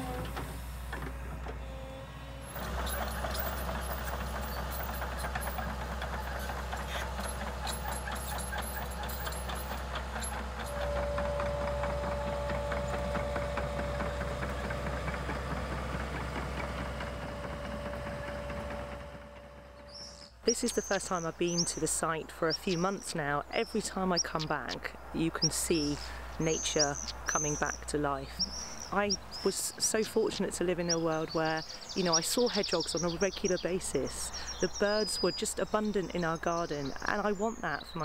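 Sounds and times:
excavator engine droning: 0:00.0 - 0:38.0
clanking and rattling tracks: 0:02.4 - 0:21.7
steady high tone: 0:10.7 - 0:15.2.

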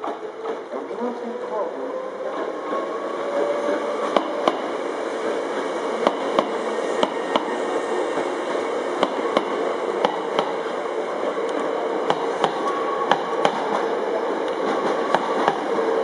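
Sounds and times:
train running noise: 0:00.0 - 0:16.0
wheels clacking over rail joint: 0:11.5 - 0:15.8.

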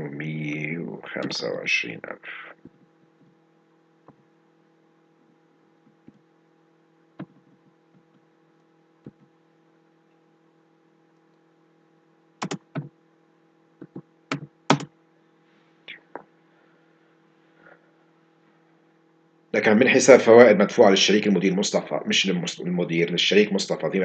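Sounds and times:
steady low hum: 0:00.0 - 0:24.0
computer keyboard keystrokes: 0:12.4 - 0:12.9, 0:13.8 - 0:14.9.

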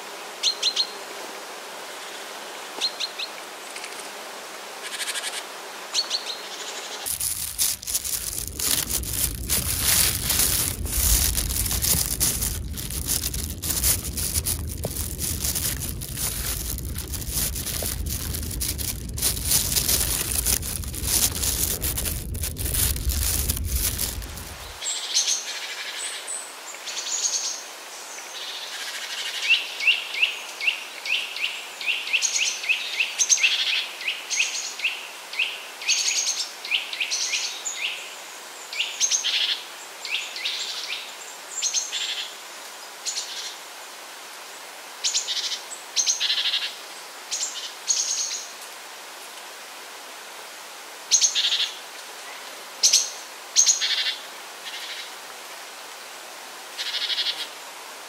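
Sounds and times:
plastic bag crinkling: 0:07.1 - 0:24.8
wind on microphone: 0:07.1 - 0:24.8.

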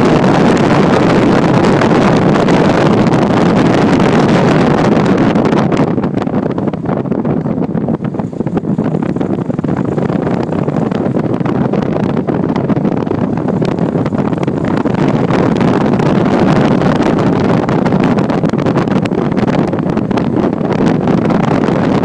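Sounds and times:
car road noise: 0:00.0 - 0:22.0
wind buffeting microphone: 0:00.0 - 0:22.0
wind through car window: 0:00.0 - 0:22.0.

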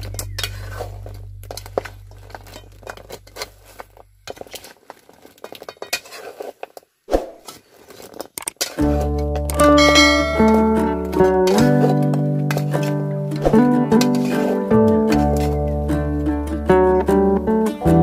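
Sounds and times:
metal spatula scraping metal pan: 0:05.7 - 0:06.6, 0:08.6 - 0:13.1, 0:13.9 - 0:15.6
background music: 0:08.8 - 0:18.0.

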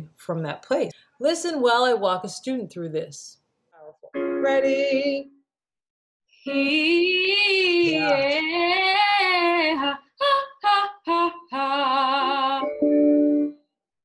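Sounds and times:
woman singing vocal exercise: 0:06.4 - 0:12.7.

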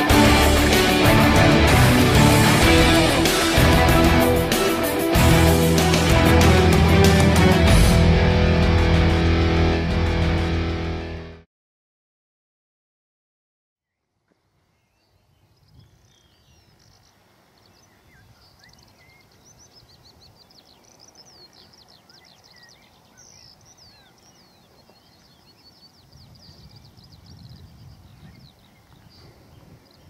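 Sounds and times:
songbirds chirping and singing: 0:14.7 - 0:30.0.

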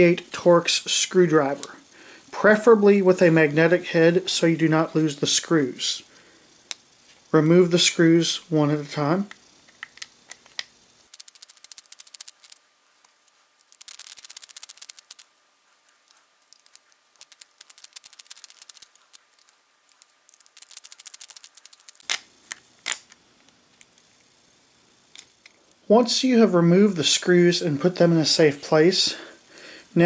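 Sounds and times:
sharp clicks: 0:11.1 - 0:12.6, 0:13.6 - 0:15.3, 0:16.4 - 0:22.2.

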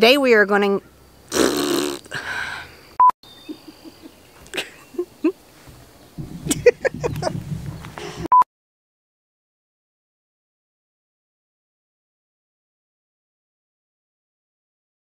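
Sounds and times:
woman's breathy outburst: 0:02.1 - 0:02.7.

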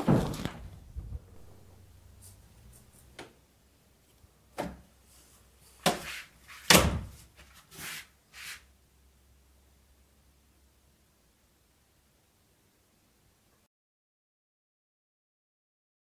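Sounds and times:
door knocks and thuds: 0:00.0 - 0:01.2.

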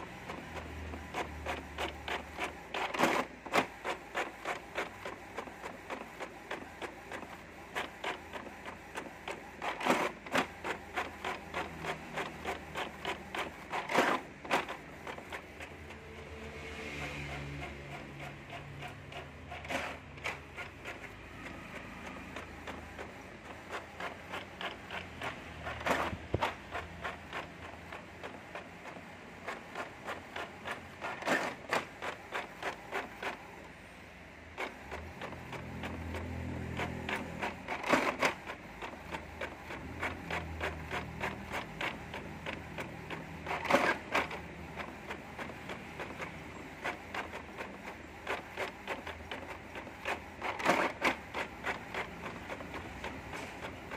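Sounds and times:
inkjet printer clicking: 0:00.0 - 0:33.8, 0:34.5 - 0:53.9
printer rattling bursts: 0:00.0 - 0:53.9.

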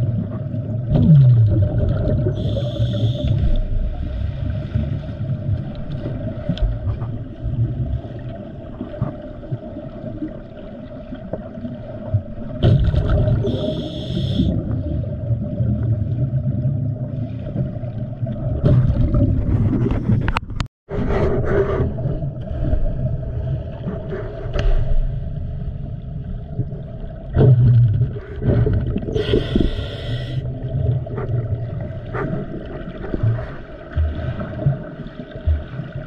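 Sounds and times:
low underwater rumble and hum: 0:00.0 - 0:36.0
bubbling exhaled air: 0:00.8 - 0:03.7, 0:12.6 - 0:17.2, 0:27.3 - 0:31.7
diver breathing through regulator: 0:02.3 - 0:03.5, 0:13.4 - 0:14.6, 0:29.1 - 0:30.5
hissing inhalation: 0:02.4 - 0:03.4, 0:13.5 - 0:14.5, 0:29.2 - 0:30.4.

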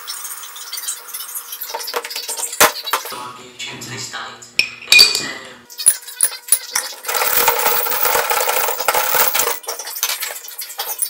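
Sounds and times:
ball bearings clinking into glass jar: 0:05.8 - 0:11.0
ball bearings rattling in glass jar: 0:05.8 - 0:11.0.

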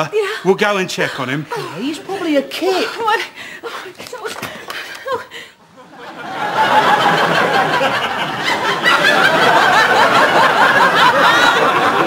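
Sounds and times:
studio audience laughing: 0:04.9 - 0:12.0.

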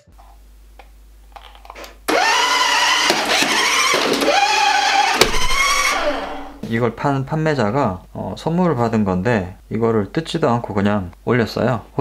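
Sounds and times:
toy car electric motor whining: 0:02.1 - 0:06.6.

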